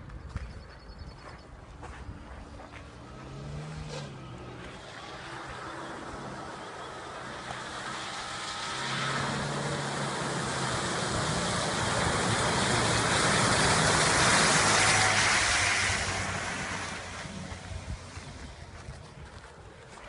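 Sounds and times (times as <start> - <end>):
engine running under throttle: 2.5 - 19.0
water splashing off wheels: 4.6 - 18.9.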